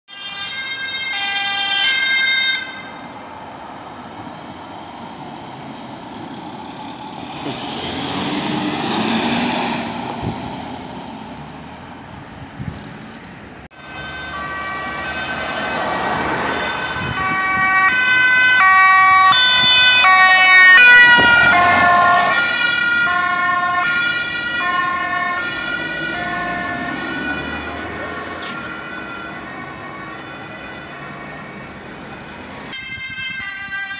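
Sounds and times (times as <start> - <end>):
two-tone emergency sirens: 0.1 - 4.6, 13.7 - 33.9
vehicle passing: 3.2 - 33.9.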